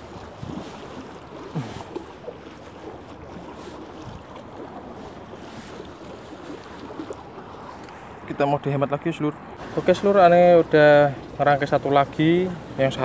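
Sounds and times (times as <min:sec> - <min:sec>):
water lapping against rocks: 0:00.0 - 0:08.4, 0:09.5 - 0:13.0.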